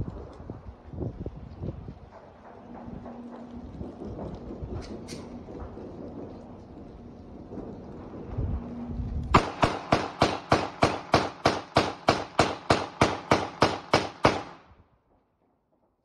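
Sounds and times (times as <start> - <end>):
rapid gunfire: 9.4 - 14.6.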